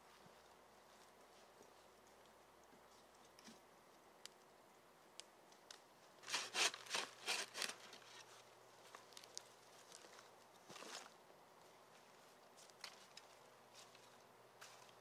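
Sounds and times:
scraping strokes: 6.2 - 8.4.

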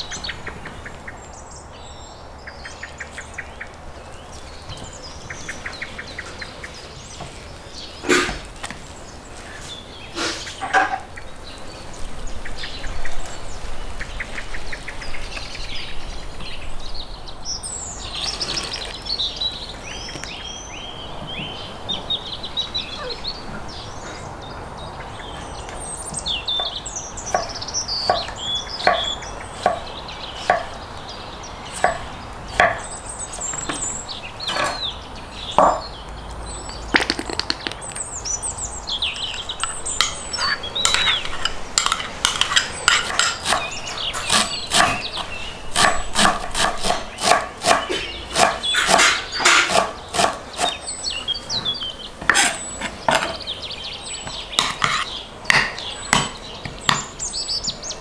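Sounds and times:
birds chirping: 0.0 - 58.0
knife cutting on wooden board: 45.8 - 50.8.

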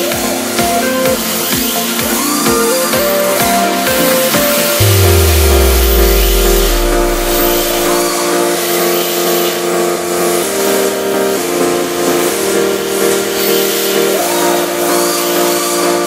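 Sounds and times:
buzzy low synth chords: 4.8 - 8.5.

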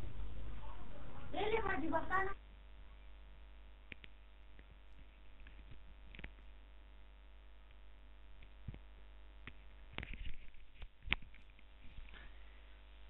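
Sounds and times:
faint mains hum: 0.0 - 13.0
soft clicks: 3.9 - 4.7.

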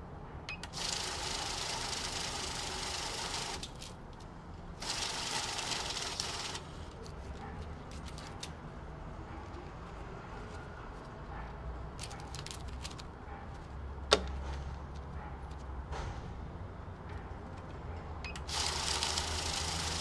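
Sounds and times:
banknote counter riffling notes: 0.5 - 3.9, 4.8 - 7.2, 18.3 - 20.0
rustling of notes: 5.8 - 8.6, 9.3 - 15.8.

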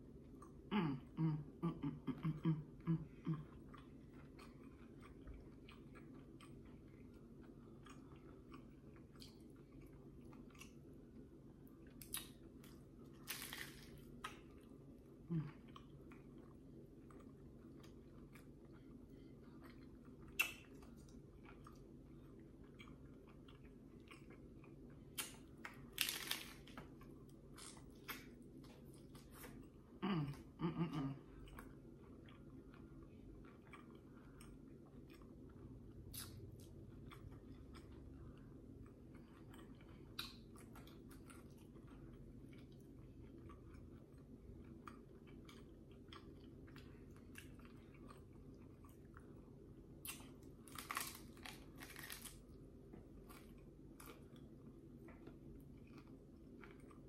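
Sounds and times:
taco crunching: 11.8 - 14.9, 15.7 - 29.7, 50.0 - 57.0.

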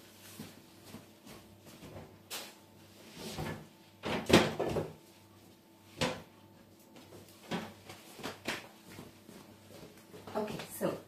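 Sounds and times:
kitchen items knocking and clattering: 3.5 - 5.0.

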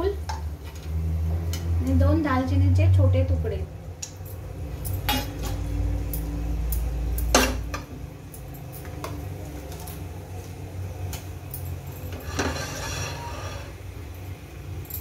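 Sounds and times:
steel plate rattling scrape: 12.1 - 13.8.

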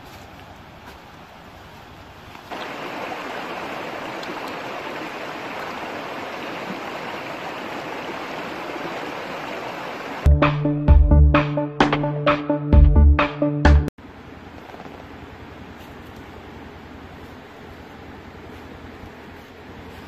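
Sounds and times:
water rushing over stones: 2.4 - 10.3.

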